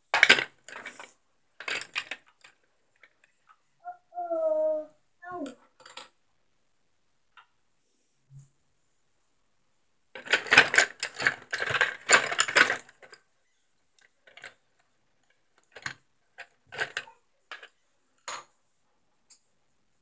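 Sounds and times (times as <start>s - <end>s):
small hard objects clattering: 10.2s - 13.2s.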